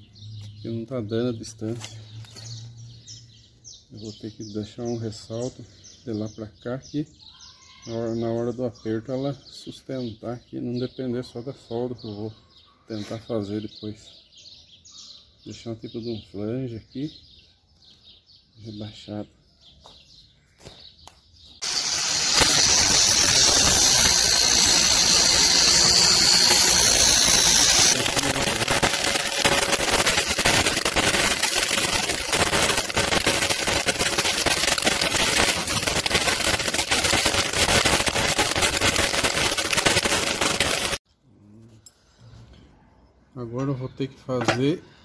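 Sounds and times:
electric arc welding: 0:21.6 - 0:41.0.

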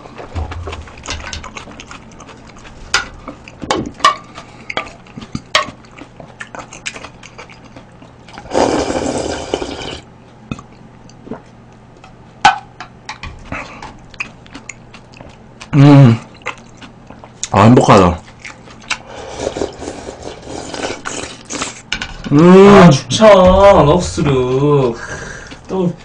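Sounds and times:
loud slurp: 0:08.4 - 0:10.0, 0:19.1 - 0:21.8.

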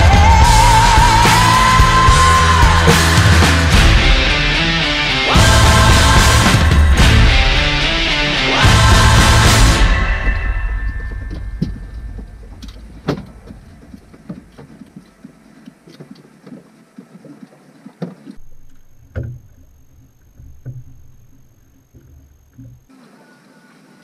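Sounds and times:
low hum: 0:00.0 - 0:22.9
faint high steady whine: 0:09.1 - 0:24.0
fishing gear knocking and clicking: 0:11.3 - 0:22.9.

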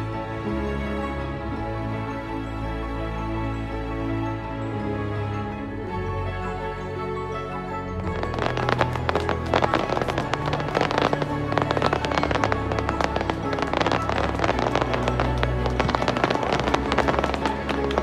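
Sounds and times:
music playing: 0:00.0 - 0:18.0
fireworks popping and crackling: 0:08.2 - 0:18.0.

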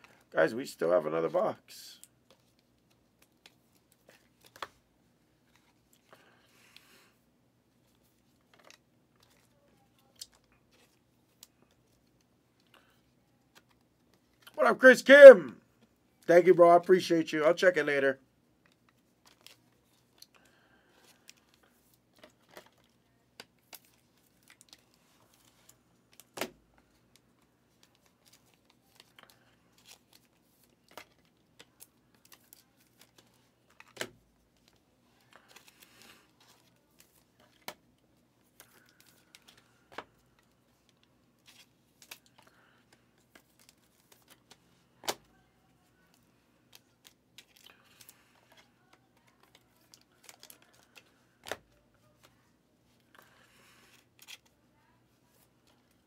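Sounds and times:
foil wrapper crinkling: 0:46.7 - 0:52.2.

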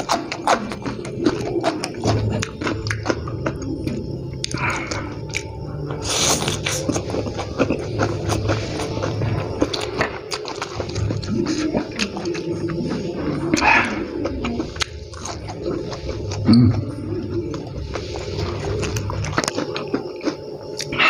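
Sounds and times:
wet chewing and lip smacks: 0:00.0 - 0:16.5.

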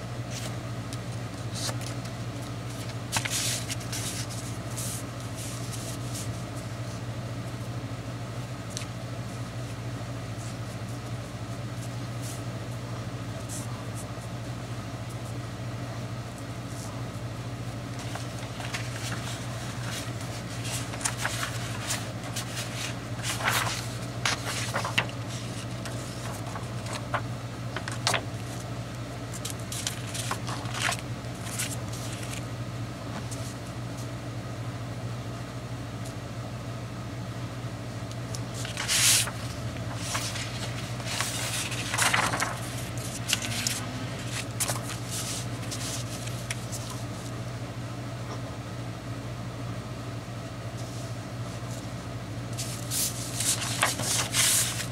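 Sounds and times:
steady low hum: 0:00.0 - 0:54.9
paper rustling and sliding: 0:00.3 - 0:07.0, 0:17.9 - 0:28.7, 0:29.3 - 0:32.5, 0:38.4 - 0:47.3, 0:52.5 - 0:54.9.

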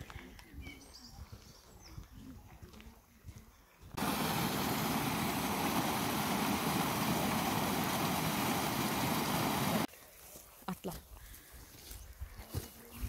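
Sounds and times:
stream rushing over rocks: 0:04.0 - 0:09.9.

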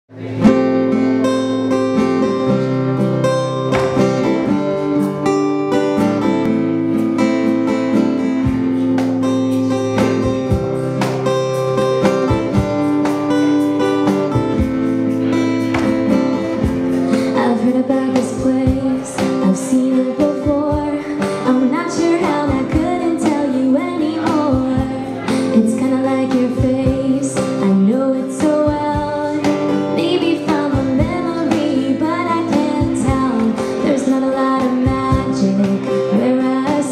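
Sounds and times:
acoustic guitar strumming: 0:00.1 - 0:36.9
cajon tapping: 0:03.6 - 0:04.4, 0:08.4 - 0:17.6
woman singing: 0:17.1 - 0:36.9.

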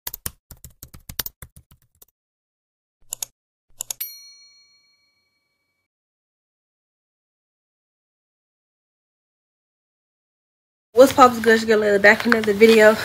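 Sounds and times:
notification bell ding: 0:04.0 - 0:05.8.

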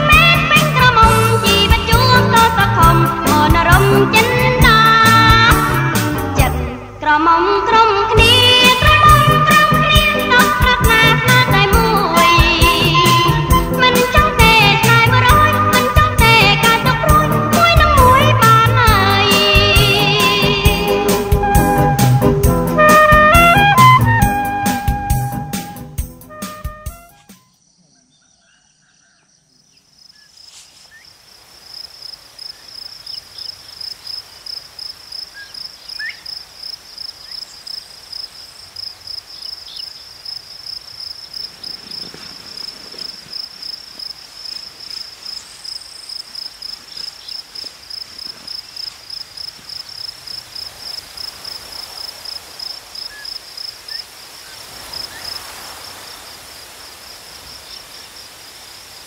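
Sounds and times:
faint outdoor hiss: 0:00.0 - 0:59.0
cricket trilling: 0:27.2 - 0:59.0.

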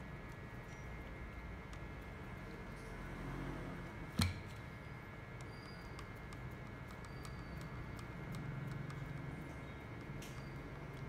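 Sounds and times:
screwdriver ticking on plastic: 0:05.3 - 0:11.0.

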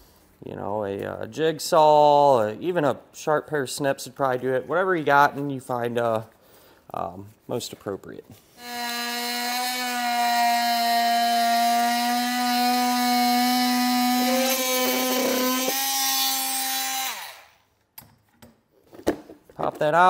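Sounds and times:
oscillating multi-tool buzzing: 0:08.6 - 0:17.6.

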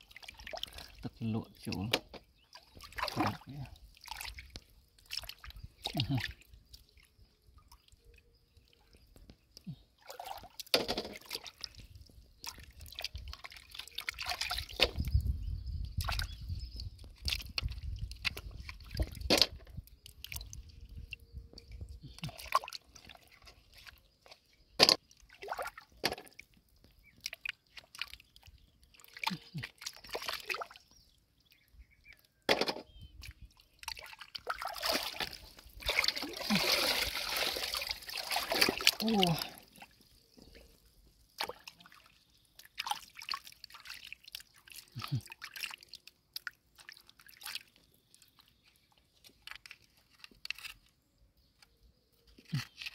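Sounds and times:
hand splashing in muddy water: 0:02.7 - 0:07.0, 0:12.4 - 0:15.1, 0:15.9 - 0:16.4, 0:27.1 - 0:30.9, 0:33.2 - 0:40.0, 0:41.3 - 0:47.7.

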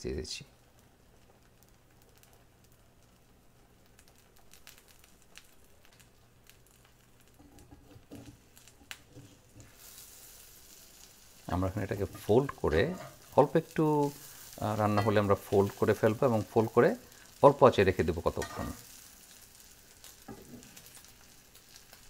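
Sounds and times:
light sizzle in frying pan: 0:00.0 - 0:22.0
cheese scattered with soft ticks: 0:00.6 - 0:14.6, 0:15.2 - 0:22.0.

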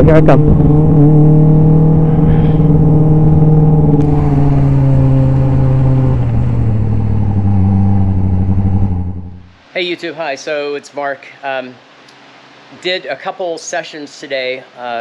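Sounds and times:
race car engine running: 0:00.0 - 0:09.5.

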